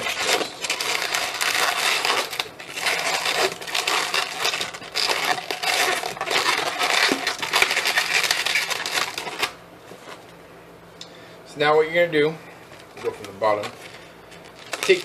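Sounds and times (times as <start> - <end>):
balloons rubbing and clicking: 0.0 - 9.6.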